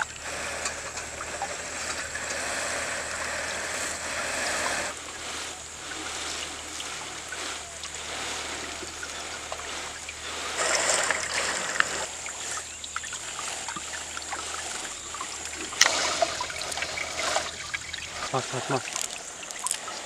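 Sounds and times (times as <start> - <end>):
light splashing: 0.0 - 20.0
water dripping off a net: 4.8 - 20.0.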